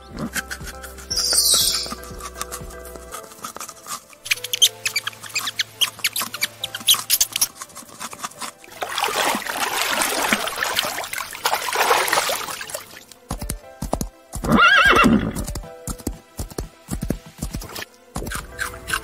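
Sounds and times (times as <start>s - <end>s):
steady hoofbeats: 0.0s - 4.0s, 13.3s - 19.0s
music: 0.0s - 19.0s
horse whinnying: 14.4s - 15.5s.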